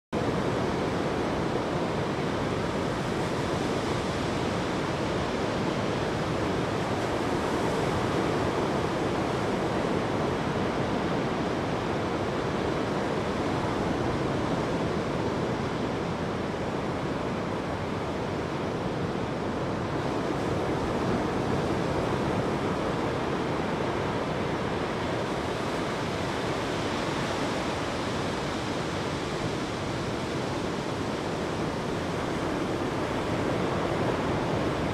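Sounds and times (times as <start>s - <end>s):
ocean waves breaking on beach: 0.2s - 34.9s.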